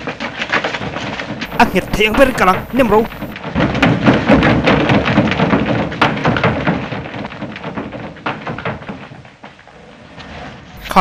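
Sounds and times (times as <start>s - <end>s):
thunder rumbling with crackles: 0.7s - 9.3s.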